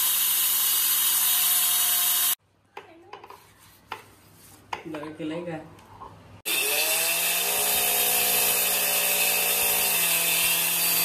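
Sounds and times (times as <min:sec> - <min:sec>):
angle grinder whine: 0:00.0 - 0:02.4, 0:06.5 - 0:11.0.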